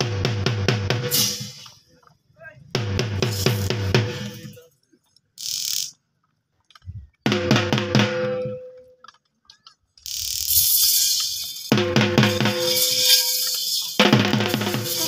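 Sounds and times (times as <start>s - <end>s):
music with heavy drum beat: 0.0s - 1.7s, 2.8s - 4.5s, 7.3s - 8.5s, 10.6s - 15.0s
brief hiss: 1.1s - 1.8s, 10.2s - 11.7s, 12.5s - 15.0s.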